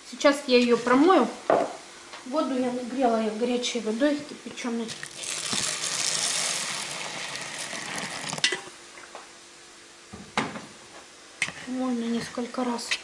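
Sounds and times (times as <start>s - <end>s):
hot water pouring onto grains: 5.0s - 8.6s.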